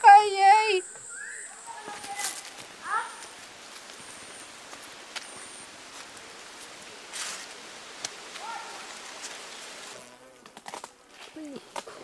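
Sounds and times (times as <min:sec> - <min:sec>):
high insect-like tones: 0:00.0 - 0:11.4
even forest hiss: 0:00.0 - 0:12.0
chirp-like call: 0:00.8 - 0:01.6
footsteps on forest path: 0:00.9 - 0:12.0
leaves brushing and rustling: 0:01.1 - 0:12.0.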